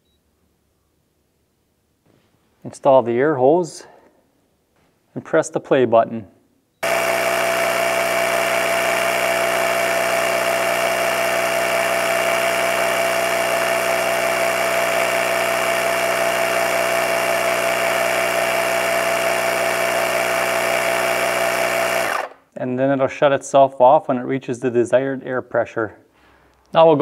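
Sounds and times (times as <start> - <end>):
tire inflator running: 6.8 - 22.4.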